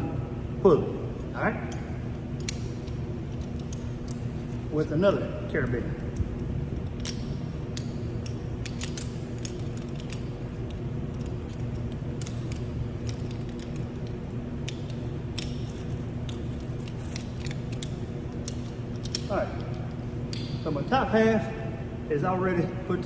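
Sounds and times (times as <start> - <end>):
steady low hum: 0.0 - 23.0
metal carabiners clicking: 6.8 - 21.2.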